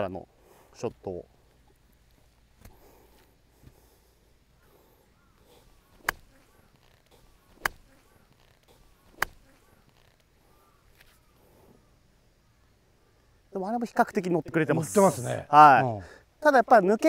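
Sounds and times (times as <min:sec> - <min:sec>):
golf club striking ball: 0:05.9 - 0:06.4, 0:07.1 - 0:07.9, 0:08.7 - 0:09.5.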